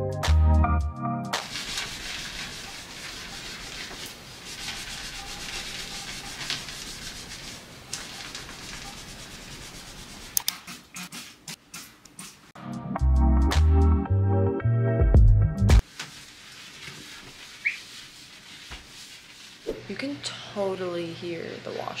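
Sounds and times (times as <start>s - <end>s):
cloth scrubbing countertop: 1.4s - 10.4s, 15.8s - 20.9s.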